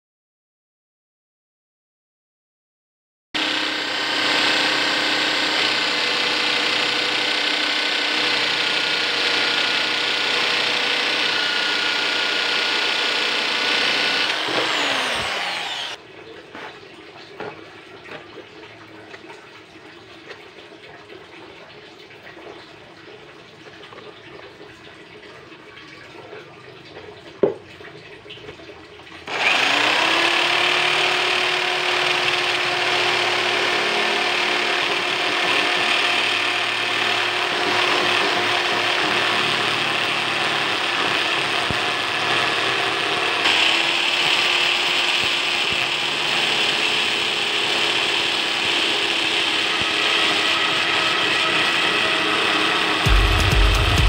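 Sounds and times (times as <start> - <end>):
electric drill cutting plastic: 3.4 - 16.0, 29.2 - 54.0.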